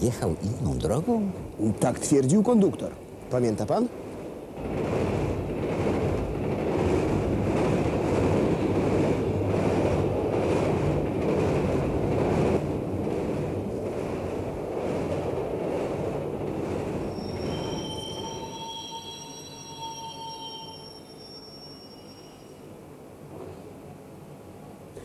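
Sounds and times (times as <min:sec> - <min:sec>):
train running on track: 0:00.0 - 0:24.9
high wheel squeals: 0:17.0 - 0:22.7.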